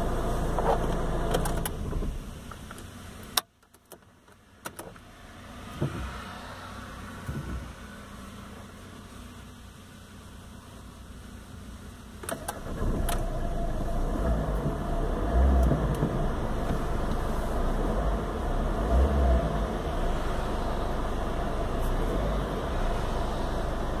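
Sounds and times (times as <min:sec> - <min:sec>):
car engine starting and idling: 0:00.0 - 0:24.0
ignition clicks: 0:00.5 - 0:05.1, 0:12.2 - 0:17.3.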